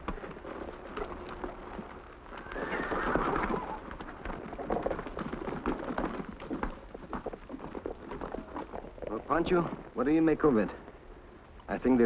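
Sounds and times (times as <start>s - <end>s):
horses galloping: 0.0s - 12.0s
horse whinnying: 2.3s - 4.0s.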